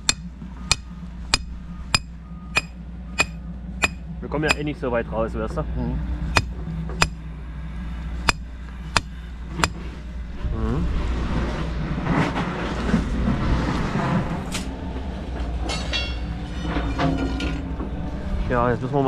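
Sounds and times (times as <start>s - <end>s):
hammer strikes: 0.0s - 4.7s, 6.3s - 7.2s, 8.2s - 9.8s
passing vehicle: 0.0s - 19.0s
steady low hum: 0.0s - 19.0s.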